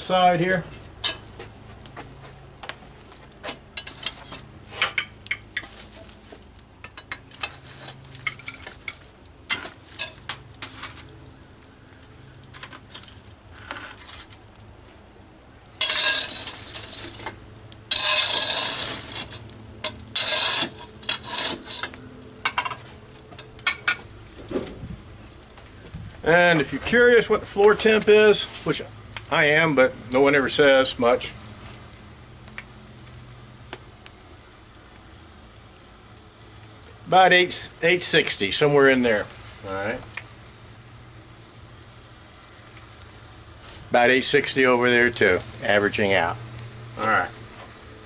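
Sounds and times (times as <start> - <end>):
metal tool scraping oven floor: 15.8 - 23.0.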